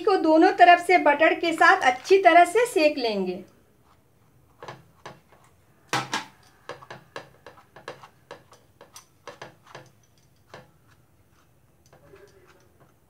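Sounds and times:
knife tapping on buns and pan: 6.0s - 11.0s.

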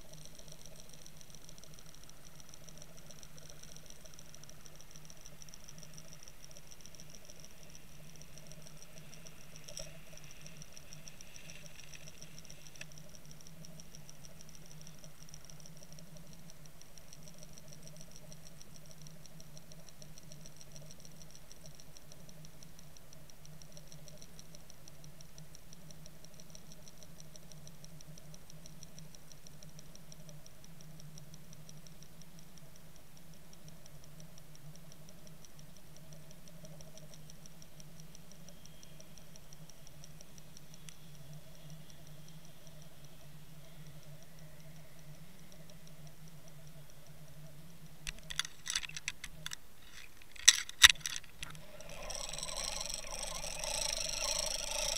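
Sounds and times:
fast fine ticking: 0.0s - 30.2s, 48.0s - 54.9s
low underwater hum: 0.0s - 54.9s.

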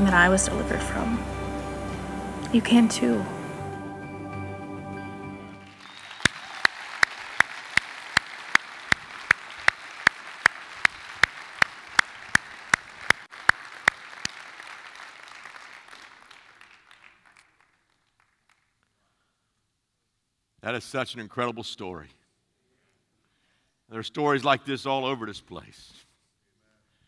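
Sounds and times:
congregation applauding: 1.0s - 18.9s
close-up loud claps: 5.6s - 19.0s.

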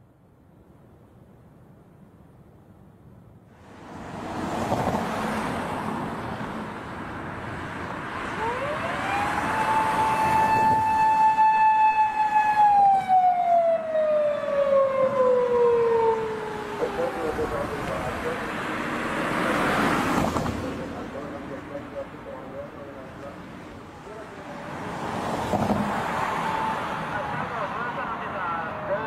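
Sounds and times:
vehicle noise: 0.0s - 29.0s
police siren wailing: 8.3s - 18.5s, 26.2s - 29.0s.

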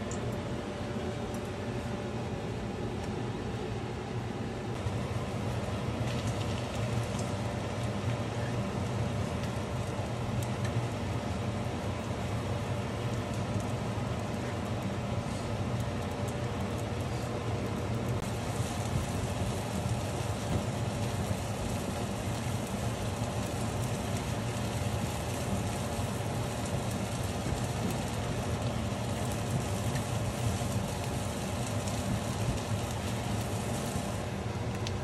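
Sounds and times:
food sizzling in oil: 18.2s - 34.4s.

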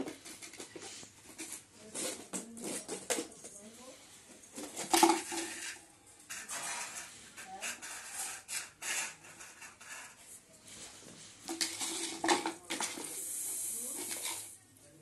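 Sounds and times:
container scraping on tiled floor: 4.6s - 13.2s.

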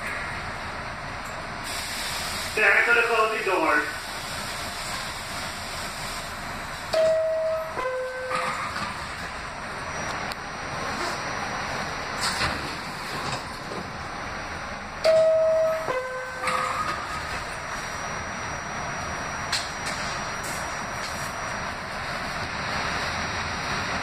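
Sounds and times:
subway car rumble and hiss: 0.0s - 24.0s
two-tone door chime: 6.9s - 8.8s, 15.0s - 21.6s.

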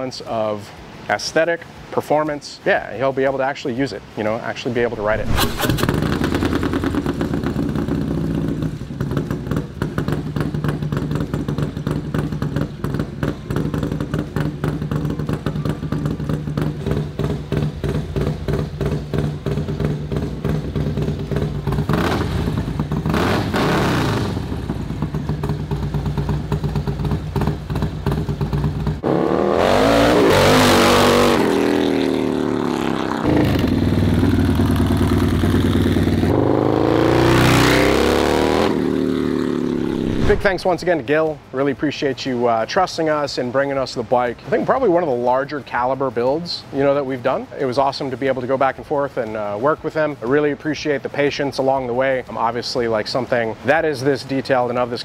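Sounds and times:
motorcycle accelerating away: 4.8s - 40.9s
motorcycle engine idling and revving: 4.8s - 40.9s.

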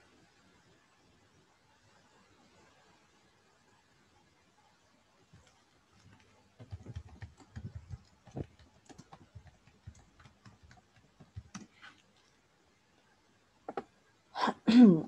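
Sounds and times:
computer keyboard typing: 5.4s - 11.8s.

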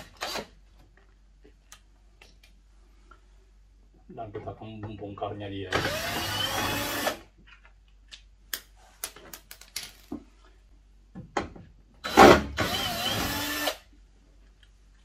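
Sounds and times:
cordless drill running: 5.8s - 7.2s, 12.0s - 13.8s.

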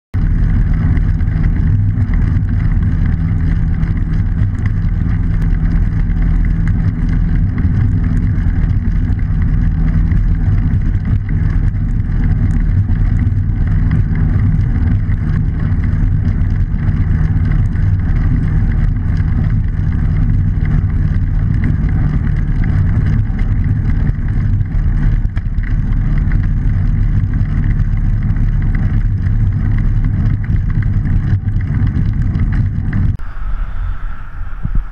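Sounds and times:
road noise: 0.2s - 34.9s
wind rumble: 0.2s - 34.9s.

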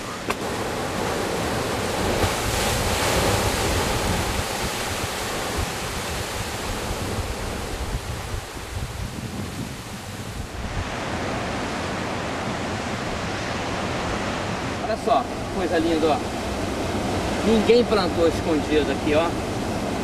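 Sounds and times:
sea surf breaking on rocks: 0.0s - 20.0s
wind buffeting microphone: 0.0s - 20.0s.

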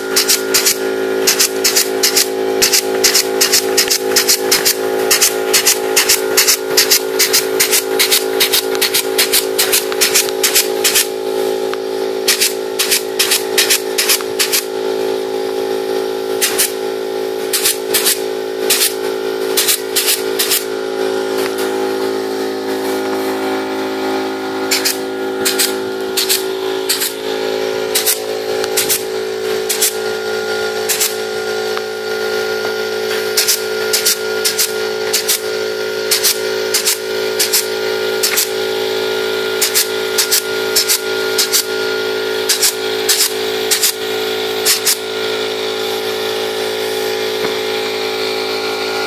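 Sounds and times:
steady droning tone: 0.0s - 49.0s
pneumatic clip gun clicks: 0.2s - 11.1s, 12.3s - 14.7s, 16.4s - 16.8s, 17.5s - 19.0s, 19.6s - 20.6s, 24.7s - 27.1s, 28.0s - 29.0s, 29.7s - 30.0s, 30.9s - 31.2s, 33.4s - 35.4s, 36.1s - 38.6s, 39.6s - 41.7s, 42.5s - 44.0s, 44.6s - 45.0s
air hiss: 0.2s - 11.5s, 12.2s - 14.7s, 16.4s - 16.8s, 17.5s - 21.8s, 24.7s - 30.0s.

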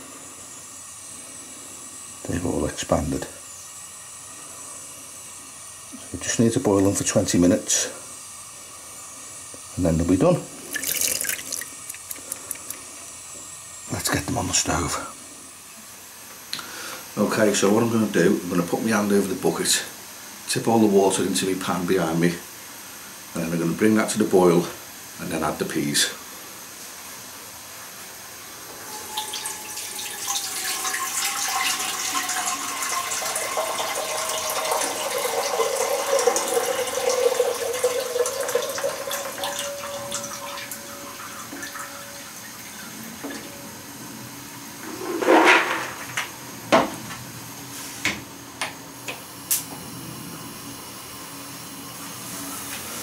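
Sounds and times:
water pouring into saucepan: 10.6s - 12.9s, 29.1s - 42.9s.

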